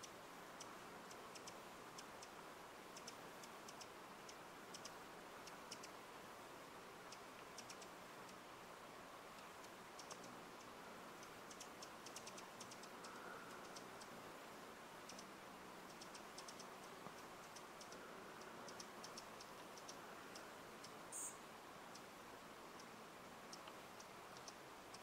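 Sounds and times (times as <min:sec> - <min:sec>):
steady hiss: 0:00.0 - 0:25.0
hummingbird chip notes: 0:15.0 - 0:22.1.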